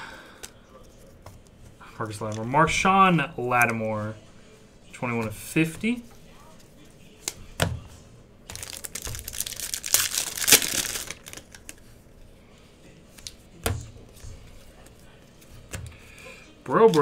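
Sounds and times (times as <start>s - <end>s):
foil wrapper crinkling and tearing: 8.5s - 11.8s
handling of cards: 8.5s - 12.0s, 13.1s - 17.0s.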